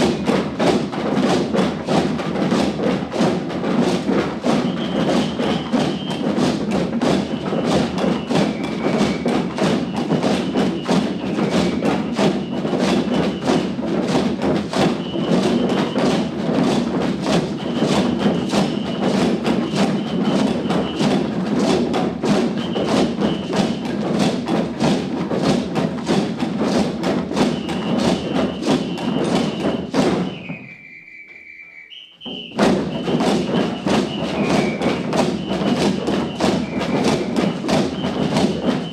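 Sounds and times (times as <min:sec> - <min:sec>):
ensemble of drums playing rhythm: 0:00.0 - 0:30.7, 0:32.2 - 0:38.9
high two-pitch tone: 0:30.6 - 0:32.4.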